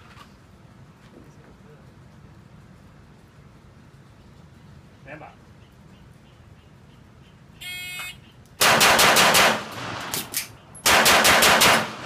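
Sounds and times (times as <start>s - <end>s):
pistol shots: 8.6s - 12.0s.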